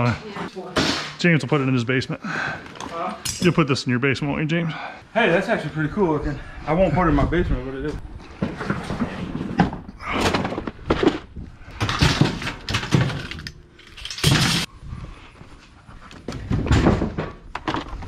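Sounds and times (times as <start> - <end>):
junk thunking and clattering: 8.0 - 13.4, 16.2 - 18.0.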